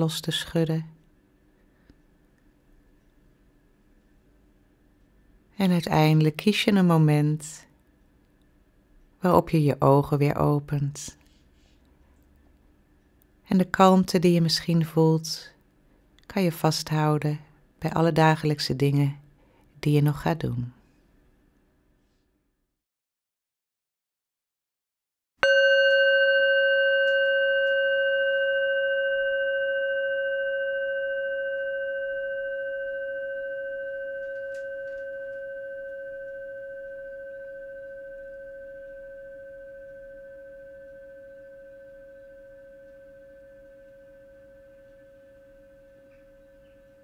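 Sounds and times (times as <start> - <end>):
singing bowl ringing: 25.4 - 47.0.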